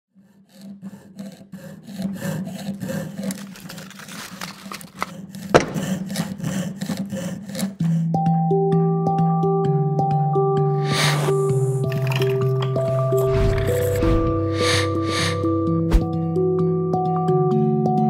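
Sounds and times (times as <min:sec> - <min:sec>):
saw rasping through thin metal: 0:00.1 - 0:08.0, 0:10.8 - 0:12.0, 0:12.8 - 0:16.1
music: 0:03.3 - 0:18.0.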